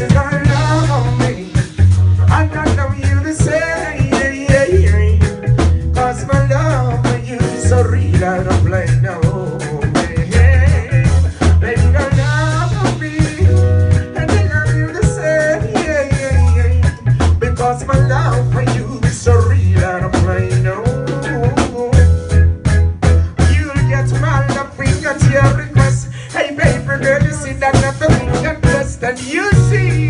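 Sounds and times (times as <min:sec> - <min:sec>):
man singing: 0:00.0 - 0:22.3, 0:23.3 - 0:30.0
deep bass line: 0:00.0 - 0:30.0
drum kit: 0:00.0 - 0:30.0
electric guitar: 0:00.0 - 0:30.0.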